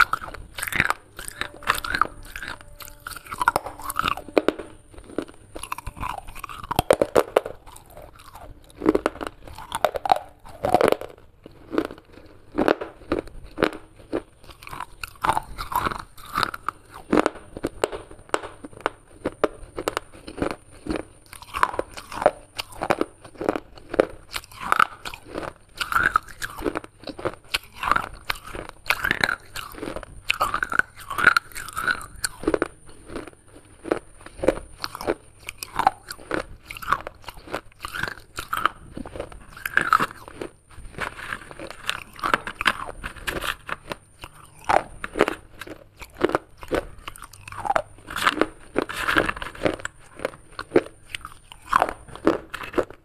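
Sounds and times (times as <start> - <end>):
teeth crunching pottery shards: 0.0 - 53.0.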